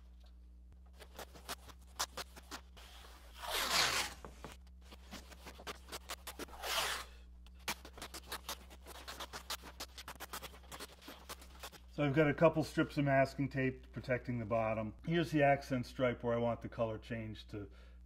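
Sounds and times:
tape crackling and patting: 0.1s - 12.0s
tape pulled off roll: 1.0s - 11.8s.

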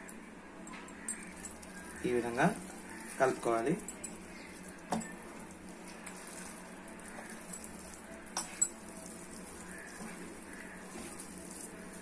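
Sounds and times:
hand mixing rice in pot: 1.1s - 12.0s
sharp metal clinks: 3.7s - 5.2s.

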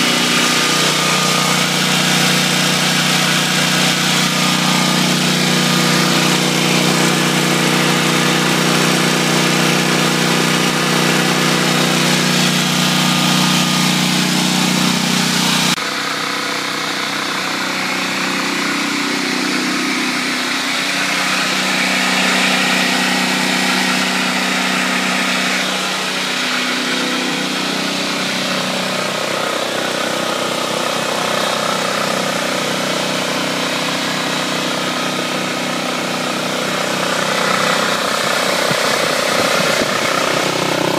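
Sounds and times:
generator engine running: 0.0s - 40.9s.

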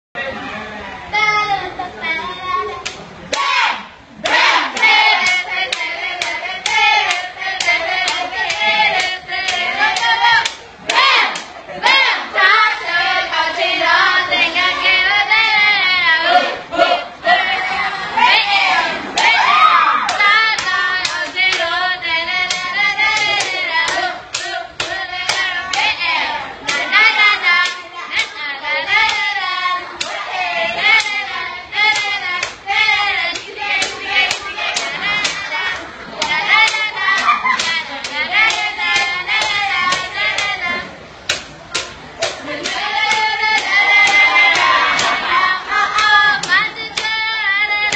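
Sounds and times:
young voices singing: 0.2s - 47.9s
hands clapping a beat: 4.3s - 12.0s, 20.1s - 21.8s, 22.4s - 26.0s, 26.6s - 28.4s, 30.9s - 31.2s, 31.8s - 40.6s, 41.2s - 45.2s, 45.9s - 47.2s.

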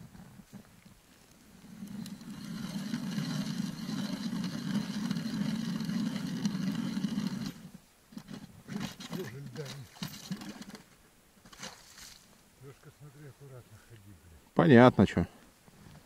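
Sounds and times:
small engine running: 1.5s - 10.8s.

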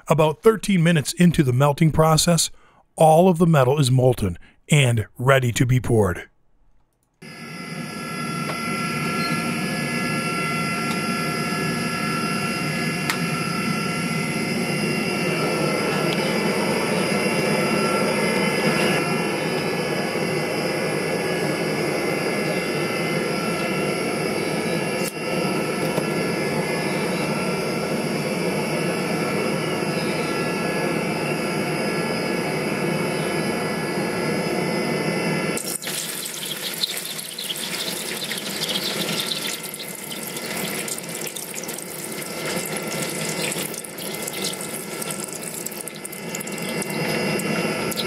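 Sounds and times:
gas burner roaring: 7.2s - 29.7s, 35.3s - 48.0s.

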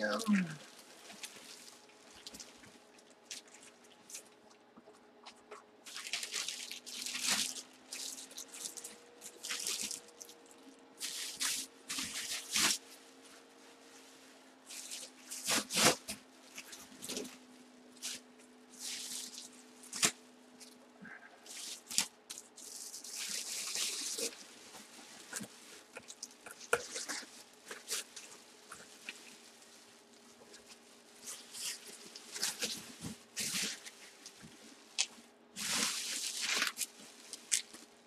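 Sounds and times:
plastic bag and bubble wrap crinkling: 0.0s - 4.6s, 5.2s - 20.8s, 21.4s - 38.0s.

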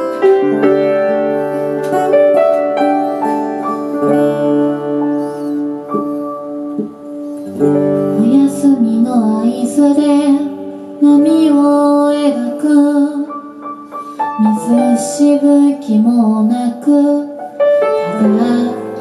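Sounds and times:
acoustic guitar: 0.0s - 19.0s
piano: 0.0s - 19.0s
woman singing: 8.1s - 13.5s, 14.4s - 19.0s.

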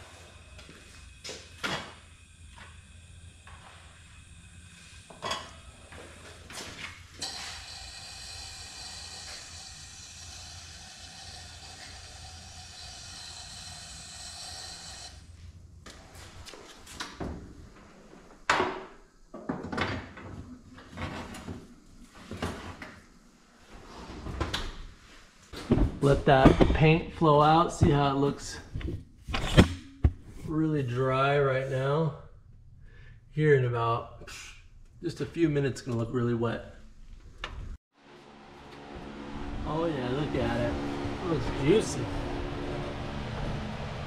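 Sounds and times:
powder spray gun hissing: 0.0s - 6.4s, 7.1s - 15.2s
metal clanks and knocks: 25.6s - 27.0s.

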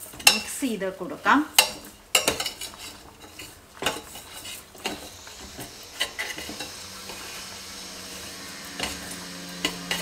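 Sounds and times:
faint steady hiss: 0.0s - 10.0s
spoon scraping a metal pot: 1.6s - 7.5s.

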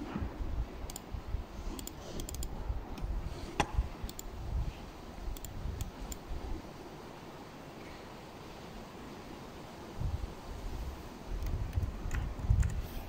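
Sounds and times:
computer mouse clicking: 0.8s - 3.1s, 3.7s - 4.4s, 5.3s - 6.3s, 11.4s - 13.0s.

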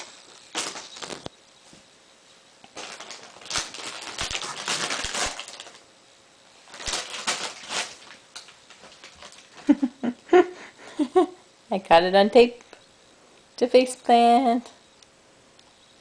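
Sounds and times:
plastic package crinkling: 0.0s - 1.3s, 2.7s - 5.9s, 6.6s - 9.8s.

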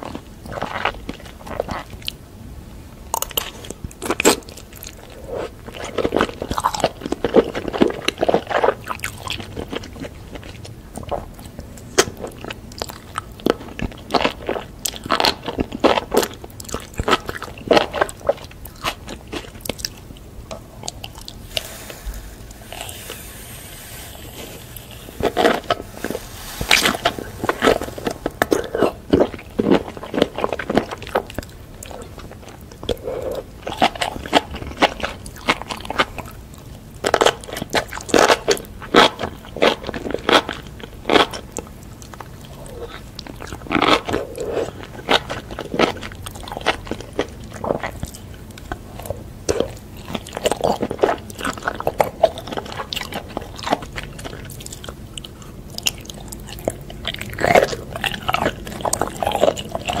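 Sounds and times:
person chewing: 3.2s - 36.3s, 42.0s - 60.0s
mouth clicks and crunches: 37.0s - 60.0s.

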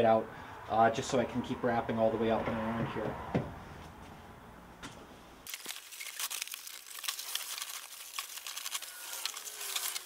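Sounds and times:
foil insulation crinkling: 5.4s - 10.0s.

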